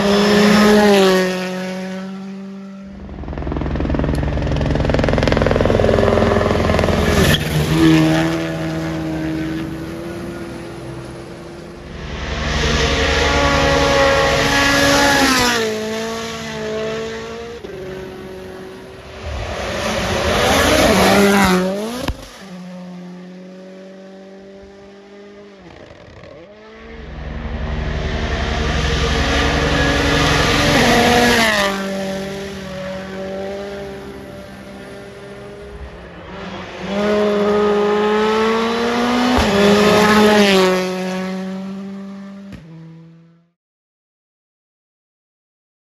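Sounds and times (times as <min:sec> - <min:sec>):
rally cars passing flat out: 0:00.0 - 0:43.4.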